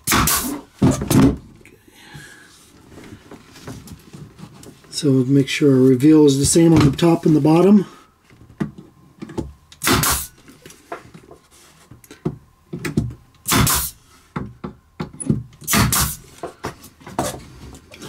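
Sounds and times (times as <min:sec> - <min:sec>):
nail gun shots: 0:00.0 - 0:00.6, 0:09.8 - 0:10.4, 0:13.4 - 0:14.0, 0:15.6 - 0:16.2.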